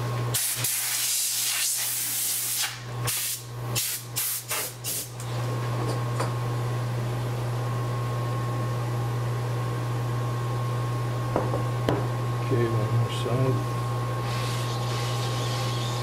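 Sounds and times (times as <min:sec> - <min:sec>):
compressed air hissing: 0:00.4 - 0:05.1.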